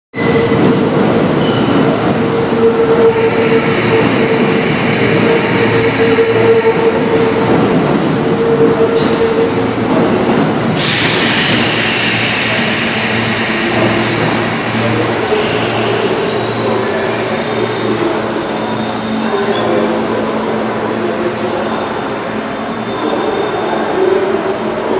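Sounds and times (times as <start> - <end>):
electric train humming: 0.6 - 22.3
compressed air hiss: 10.8 - 15.9.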